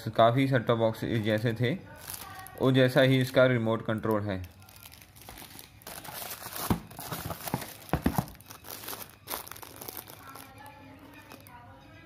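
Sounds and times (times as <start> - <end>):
plastic wrapping crinkling: 1.2 - 3.1, 4.0 - 11.6.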